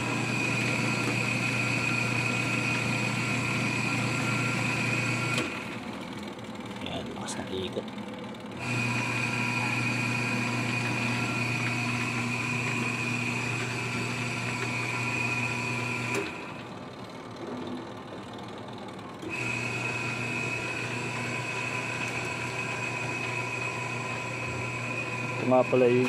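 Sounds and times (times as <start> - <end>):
washing machine motor humming and whining: 0.0 - 26.0.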